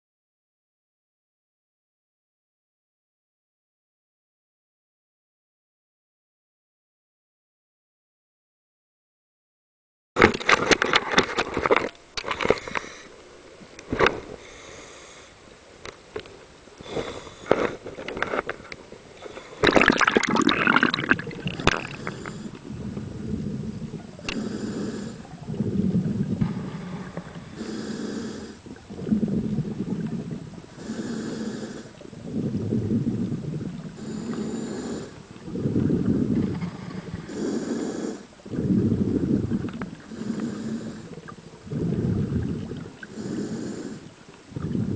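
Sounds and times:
scuba regulator inhalation hiss: 12.5s - 13.2s, 14.4s - 15.4s, 16.8s - 17.8s, 19.2s - 22.6s, 24.2s - 25.3s, 26.5s - 28.7s, 30.7s - 32.0s, 34.0s - 35.3s, 36.7s - 38.3s, 40.1s - 41.2s, 43.0s - 44.2s
exhalation bubbling rumble: 19.2s - 44.9s.

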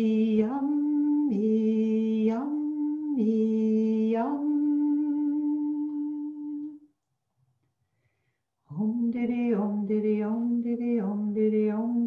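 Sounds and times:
woman singing syllables: 0.0s - 6.8s.

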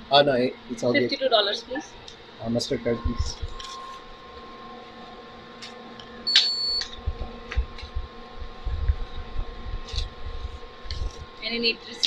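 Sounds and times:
faint electrical hum: 0.0s - 12.0s
payment terminal beep: 6.2s - 6.9s.

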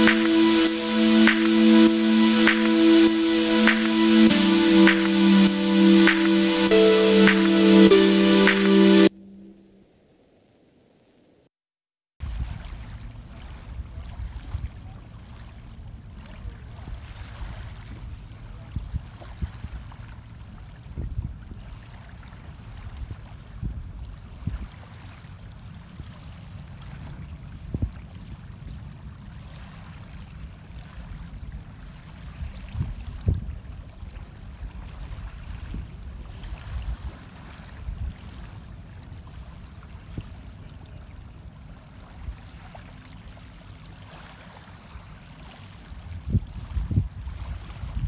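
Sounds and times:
small waves lapping at shore: 21.6s - 48.0s.

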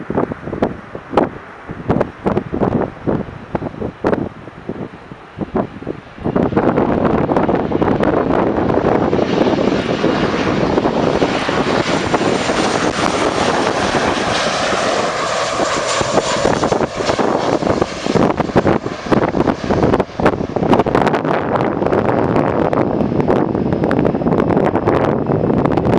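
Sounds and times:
jet engine whine: 0.0s - 25.9s
jet engines roaring overhead: 0.0s - 25.9s
wind buffeting microphone: 0.0s - 25.9s.

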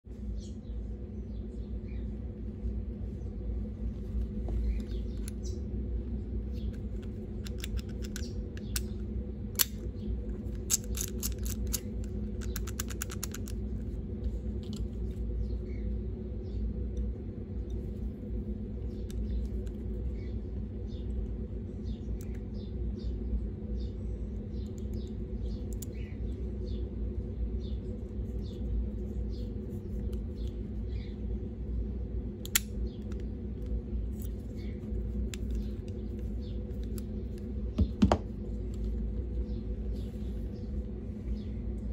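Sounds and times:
low hum: 0.0s - 41.9s
padlock wheels clicking: 6.6s - 13.9s.

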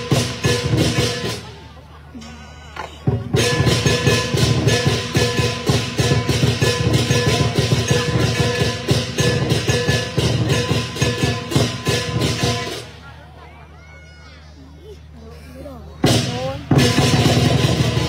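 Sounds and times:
cymbals and gong ringing: 0.0s - 1.6s, 2.2s - 13.0s, 16.0s - 18.0s
large drum beating: 0.0s - 1.6s, 3.0s - 13.0s, 16.0s - 18.0s.

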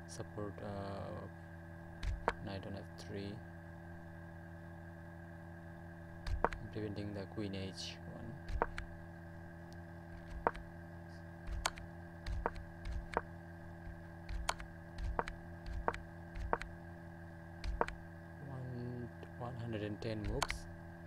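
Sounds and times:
steady electrical hum: 0.0s - 21.0s
sharp computer clicks: 2.0s - 2.5s, 6.2s - 6.7s, 8.4s - 8.9s, 10.2s - 10.7s, 11.5s - 13.3s, 13.9s - 16.8s, 17.6s - 18.0s, 20.2s - 20.7s.

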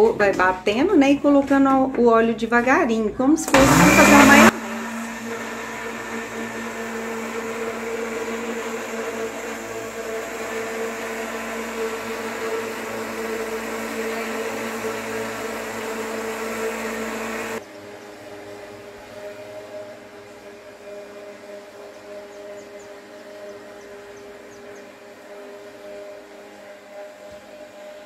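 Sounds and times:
blender whirring: 3.4s - 17.6s.

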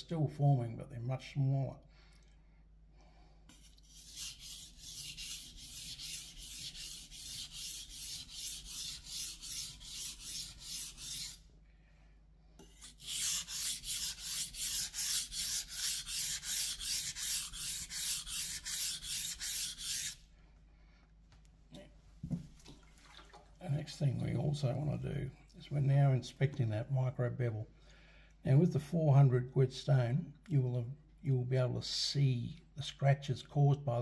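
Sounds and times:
knife scraping on whetstone: 3.5s - 11.4s, 12.6s - 20.2s.

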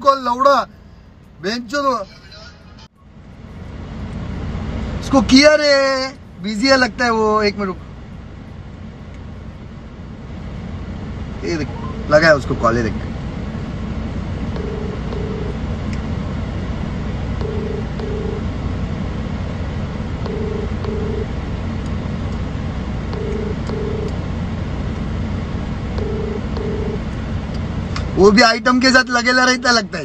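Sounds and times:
low rumble inside car: 0.0s - 30.0s
telephone ringback tone: 14.6s - 15.6s, 17.4s - 18.4s, 20.3s - 21.3s, 23.2s - 24.1s, 26.0s - 27.0s.

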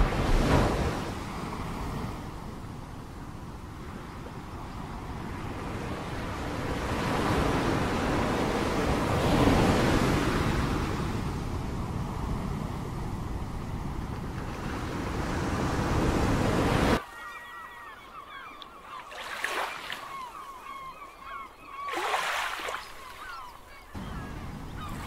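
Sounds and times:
waves breaking: 0.0s - 2.6s, 19.0s - 25.0s
ocean surf washing: 0.0s - 17.0s, 21.8s - 25.0s
birds chirping: 17.0s - 25.0s.

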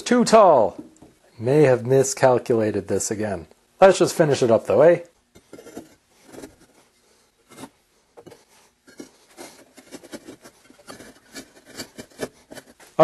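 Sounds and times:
firebricks scraping and tapping: 5.3s - 6.8s, 7.4s - 13.0s.

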